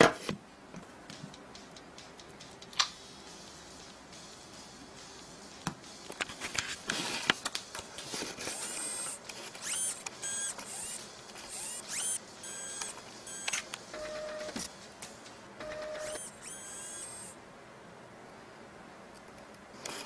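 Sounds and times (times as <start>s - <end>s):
small electric motor whining: 8.5s - 13.6s, 16.0s - 17.3s.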